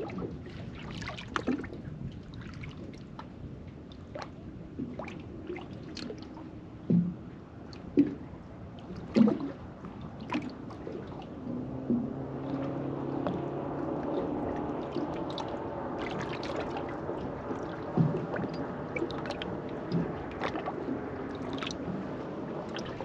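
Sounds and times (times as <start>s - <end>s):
low steady hum: 0.0s - 23.0s
water lapping around boat: 0.0s - 23.0s.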